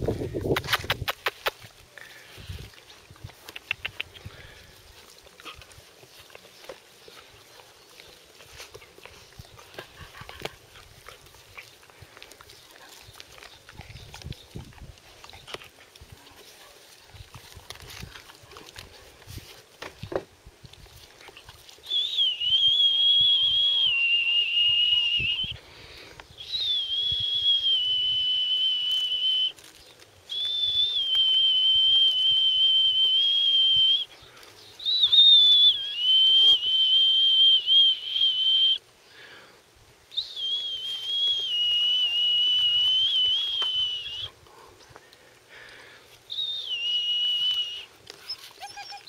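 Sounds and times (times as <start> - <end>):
person whistling long notes: 21.8 - 25.6, 26.4 - 29.6, 30.3 - 34.1, 34.8 - 38.8, 40.1 - 44.3, 46.3 - 48.0.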